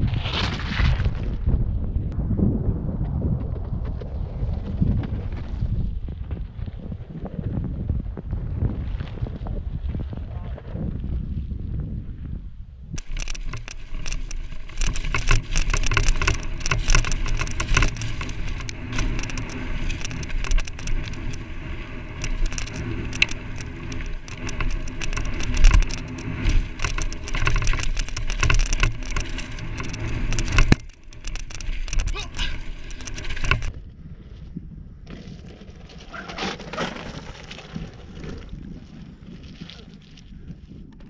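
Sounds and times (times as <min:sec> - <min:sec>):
bike tyres on dirt and stones: 0:00.0 - 0:41.0
bike rattling and knocking: 0:13.0 - 0:33.8.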